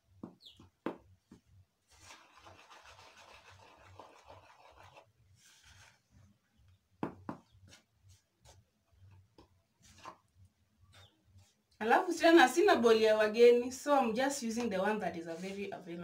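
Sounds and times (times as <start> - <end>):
fingers rubbing dough in bowl: 1.9 - 5.1.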